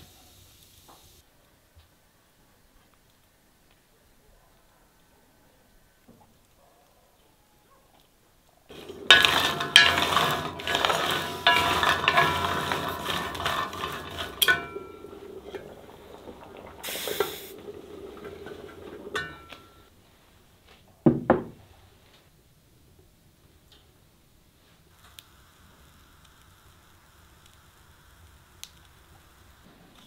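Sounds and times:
chestnuts rattling in metal pan: 0:08.7 - 0:16.5
brief hiss: 0:16.8 - 0:17.6.

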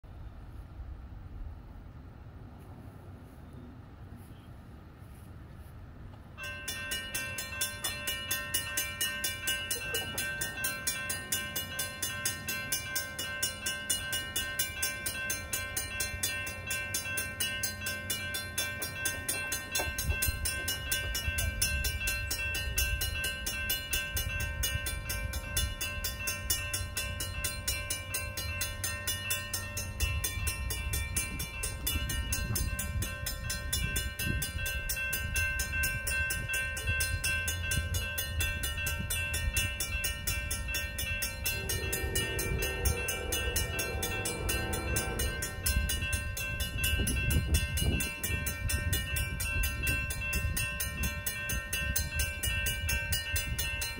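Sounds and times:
electronic crossing bell ringing: 0:06.4 - 0:53.9
low rumble: 0:41.1 - 0:47.8.

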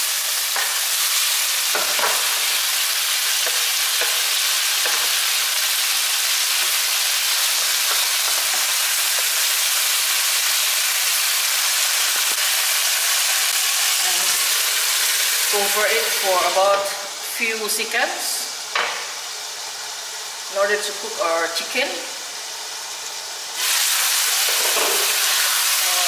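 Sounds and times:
onions and chicken sizzling: 0:00.0 - 0:26.0.

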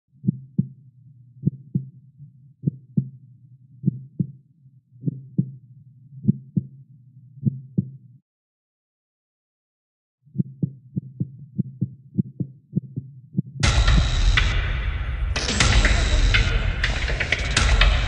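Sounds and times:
heartbeat double thump: 0:10.4 - 0:18.0
low hum: 0:13.6 - 0:18.0.

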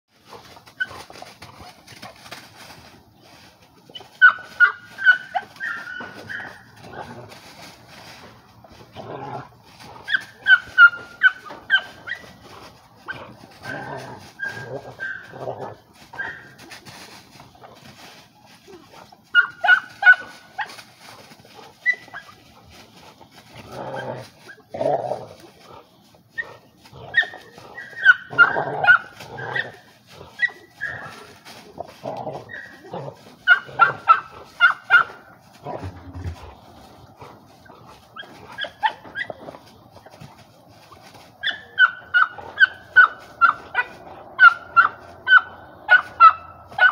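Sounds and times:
dry leaves crunching: 0:00.1 - 0:46.9
dog whining: 0:03.9 - 0:07.0, 0:13.1 - 0:16.6, 0:21.8 - 0:22.4, 0:26.4 - 0:31.3, 0:32.2 - 0:35.1, 0:37.2 - 0:39.6.

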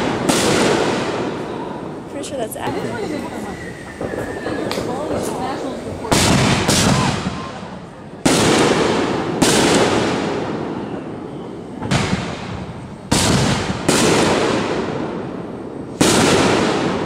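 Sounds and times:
fireworks bangs with rolling echo: 0:00.0 - 0:17.0.

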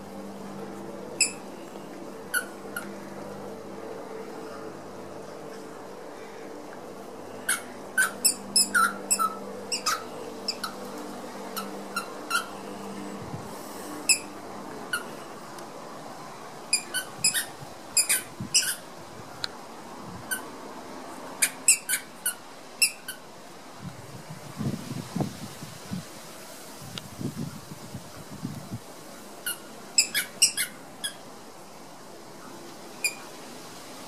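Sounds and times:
squeaky ball squeaking: 0:07.5 - 0:10.7, 0:29.5 - 0:31.2.

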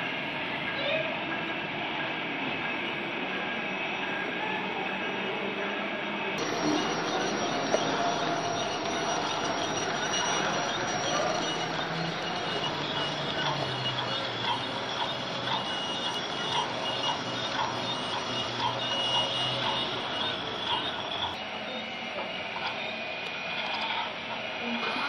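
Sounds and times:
model train motor hum: 0:01.2 - 0:25.0
wheels clicking over rail joints: 0:06.4 - 0:21.4.

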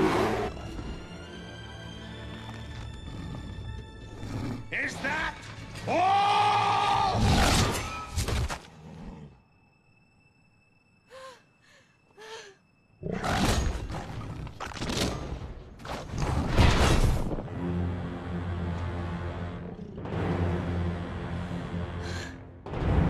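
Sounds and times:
bear roaring: 0:02.8 - 0:05.4.

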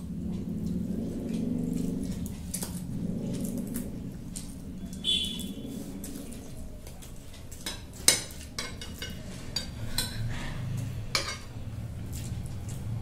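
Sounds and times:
cutlery clinking on glass plates: 0:07.6 - 0:10.3, 0:11.2 - 0:11.5.

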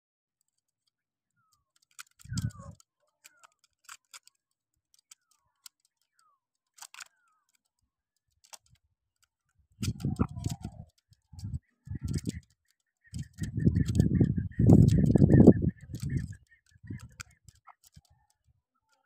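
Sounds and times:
sharp clicks: 0:01.7 - 0:07.8, 0:08.4 - 0:18.5
partridge calling: 0:11.4 - 0:18.2.

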